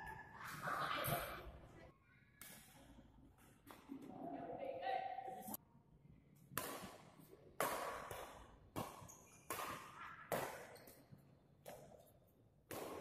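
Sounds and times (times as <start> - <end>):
badminton racket hitting shuttlecock: 6.6 - 11.0, 12.7 - 13.0.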